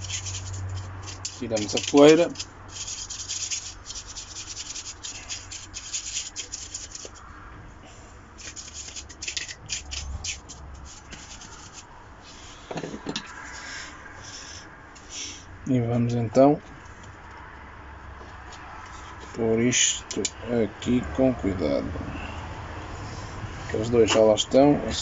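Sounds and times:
rubbing strokes wiping plastic: 0:00.0 - 0:07.2.

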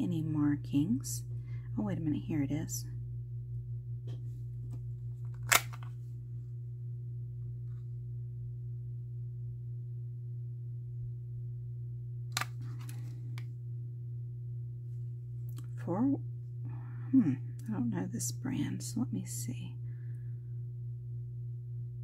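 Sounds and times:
steady low hum: 0:00.0 - 0:22.0
handling noises: 0:12.4 - 0:13.4.

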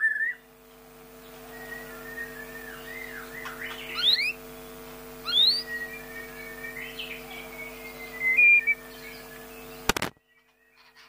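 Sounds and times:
bird singing whistled phrases: 0:00.0 - 0:00.4, 0:01.5 - 0:04.4, 0:05.2 - 0:09.7
faint steady hum: 0:00.0 - 0:11.0.

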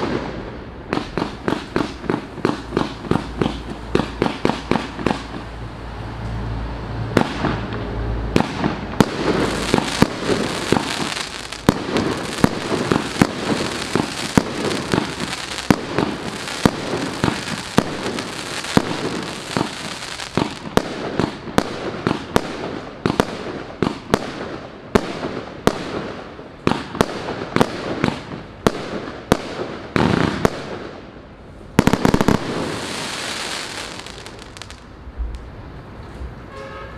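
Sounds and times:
fireworks shots and bursts: 0:00.0 - 0:05.5, 0:07.1 - 0:31.1, 0:31.7 - 0:34.9
dense rushing noise: 0:00.0 - 0:20.7.

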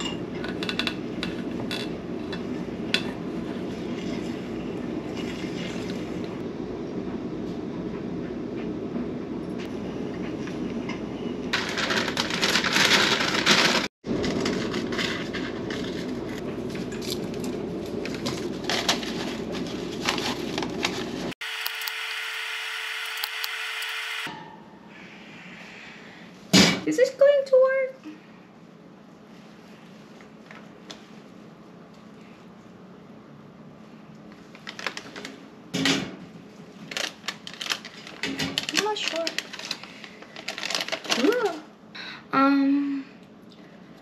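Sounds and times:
paper rustling: 0:11.6 - 0:21.4, 0:36.8 - 0:41.5.

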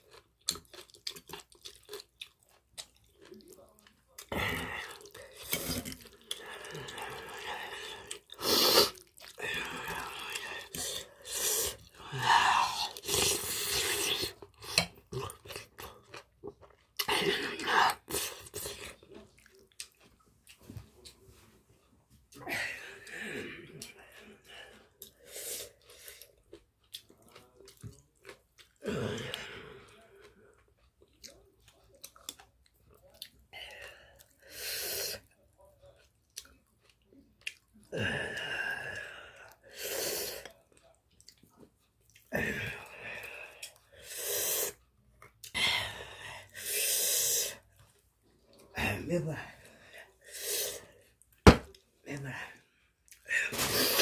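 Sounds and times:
wet chewing sounds: 0:00.0 - 0:21.4, 0:23.8 - 0:34.5, 0:35.1 - 0:37.9, 0:39.0 - 0:42.3.

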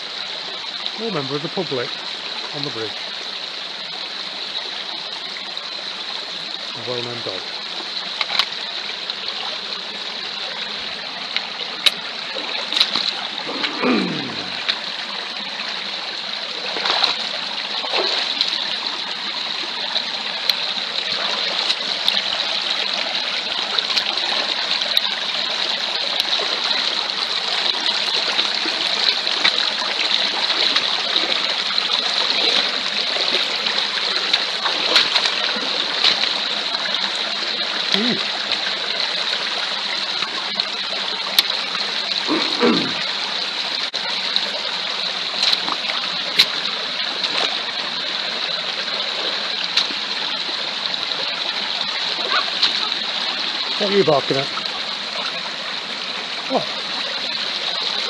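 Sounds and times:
stream running over stones: 0:00.0 - 0:58.0
boots splashing through water: 0:11.8 - 0:14.8, 0:16.6 - 0:18.6, 0:28.6 - 0:36.5, 0:45.3 - 0:47.6.

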